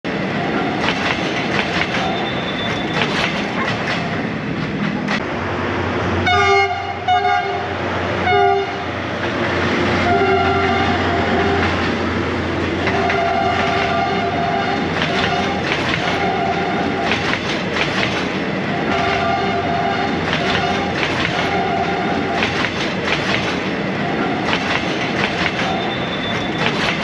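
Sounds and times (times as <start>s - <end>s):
train wheels clicking over rail joints: 0.1s - 5.3s, 9.0s - 27.0s
train horn blasts: 6.2s - 8.9s, 10.0s - 12.0s, 12.8s - 17.0s, 18.8s - 22.4s.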